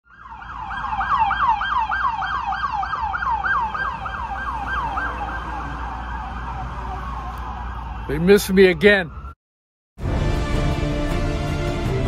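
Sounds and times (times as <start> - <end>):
siren yelping: 0.0 - 9.4.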